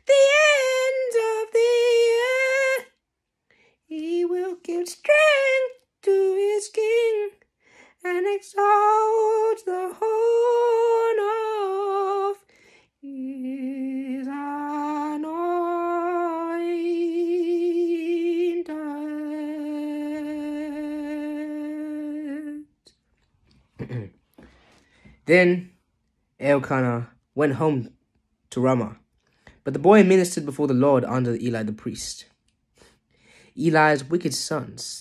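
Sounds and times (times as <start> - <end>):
woman singing wordless tune: 0.0 - 3.0, 3.9 - 7.4, 8.0 - 22.7.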